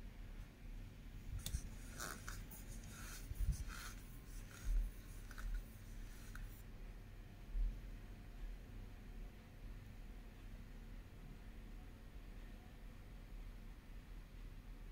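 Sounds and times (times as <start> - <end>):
utensil scraping food on plate: 1.4 - 6.6.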